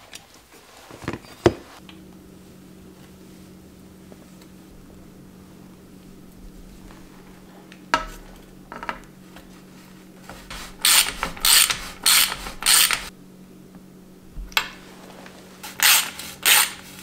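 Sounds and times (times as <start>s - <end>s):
ratchet wrench clicking: 10.8s - 13.1s, 15.8s - 16.8s.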